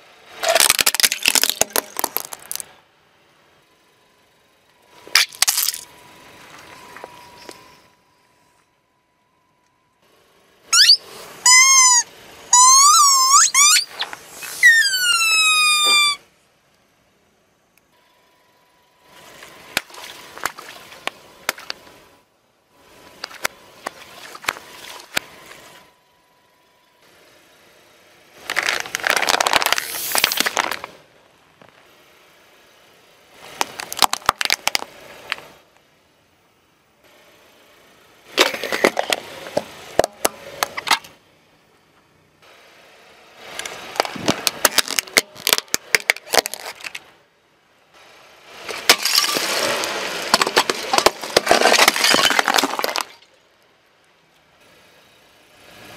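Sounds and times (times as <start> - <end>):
tyre crushing detergent pods: 0.4 - 2.7, 28.4 - 31.0, 33.5 - 35.4, 38.4 - 41.1, 43.6 - 47.1, 48.7 - 53.3
plastic cracking and snapping: 0.5 - 2.6, 28.5 - 30.9, 33.6 - 35.4, 44.0 - 47.0
squeaky toys squealing: 10.7 - 16.2.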